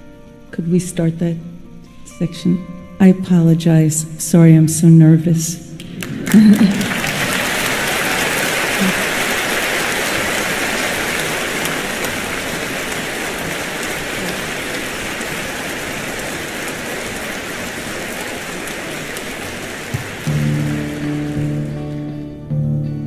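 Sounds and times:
large audience applauding: 5.8 - 22.5.

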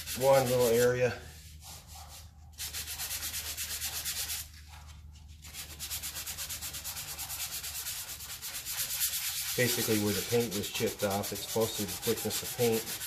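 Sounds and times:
sandpaper rubbing on putty: 0.0 - 4.6, 5.4 - 13.0.

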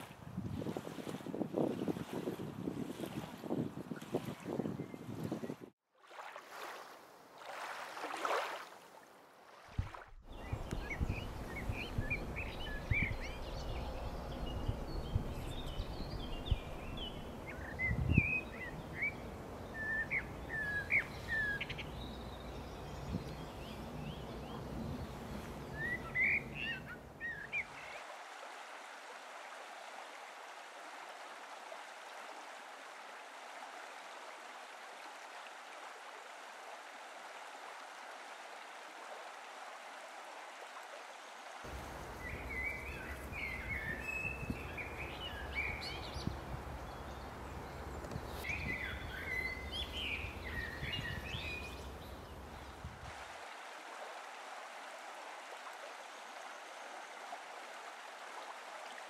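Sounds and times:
wind rumble on microphone: 0.0 - 5.7, 9.8 - 19.0, 41.7 - 51.7, 52.6 - 53.2
running water rushing: 0.0 - 59.0
small birds chirping: 10.2 - 19.2, 41.7 - 52.3.

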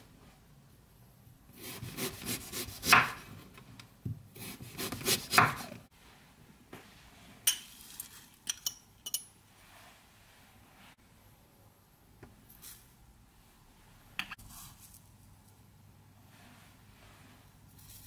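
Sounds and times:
knife slicing carrot on board: 1.6 - 3.3, 4.4 - 5.8.

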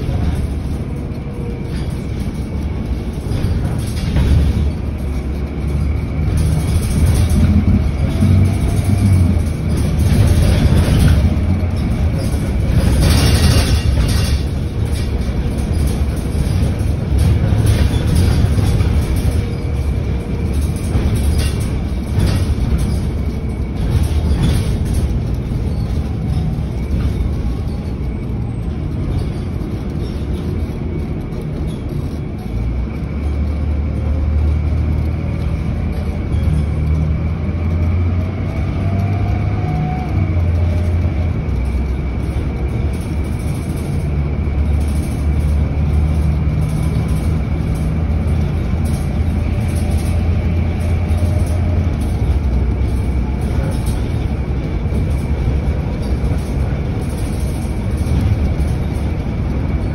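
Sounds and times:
cabin rattles: 0.0 - 39.4
bus engine and road rumble: 0.0 - 59.9
loud clatter: 0.0 - 59.9.

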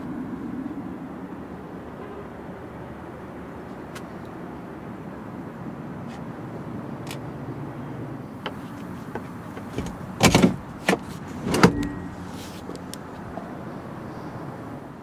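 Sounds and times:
car seat clicks and clunks: 8.4 - 12.1.

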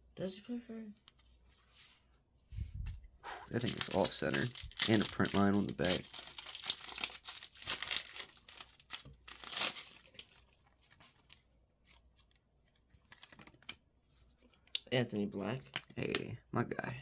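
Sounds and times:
foil wrapper crinkling and tearing: 3.5 - 11.4
cards being handled: 3.5 - 14.7.

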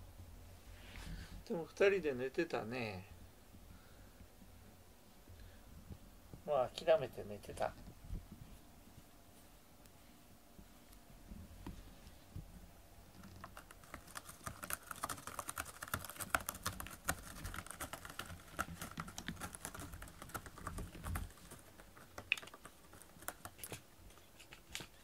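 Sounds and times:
cat scratching cardboard: 13.2 - 25.0.

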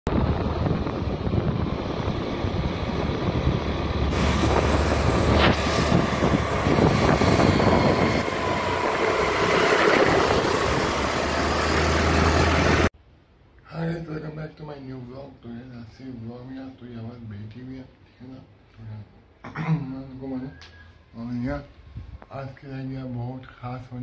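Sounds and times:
wind on microphone: 0.1 - 11.4, 21.8 - 22.3
scooter engines: 0.1 - 12.9
road traffic: 0.1 - 13.0.

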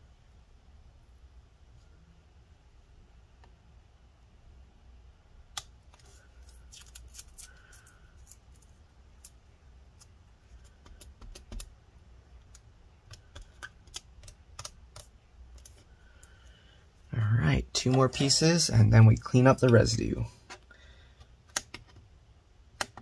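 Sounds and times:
adhesive strips peeling clicks: 6.4 - 9.4.

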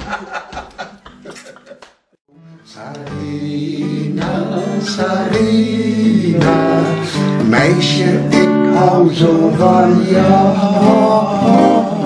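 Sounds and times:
acoustic guitar strumming: 2.4 - 12.0
man singing: 2.5 - 12.0.

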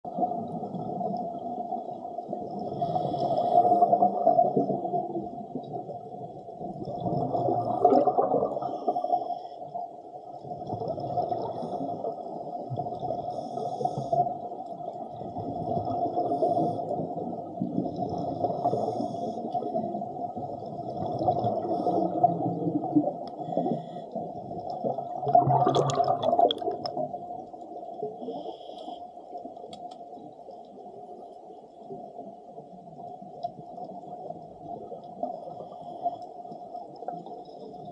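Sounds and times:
underwater bubbles rumbling: 0.0 - 28.7, 29.3 - 37.9
diver breathing through regulator: 2.6 - 4.0, 21.5 - 22.4.

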